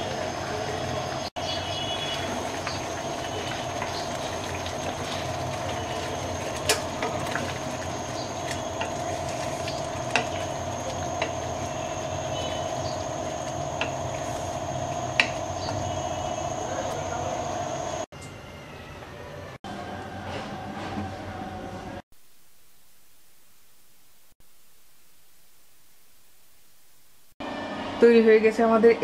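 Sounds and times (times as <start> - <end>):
steady hum: 0.0 - 18.1, 22.1 - 28.3
curry simmering and bubbling: 1.4 - 16.2
spatula stirring: 2.1 - 15.5.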